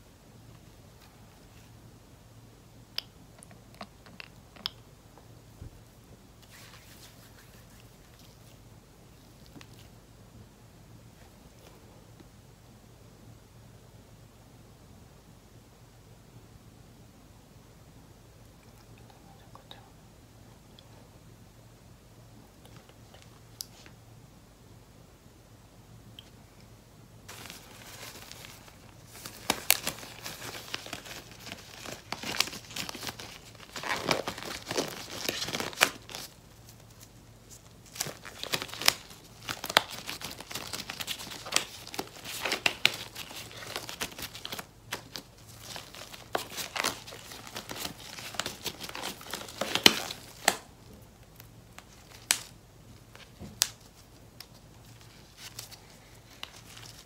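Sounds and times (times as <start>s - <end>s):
plastic pack crinkling: 27.3s - 57.0s.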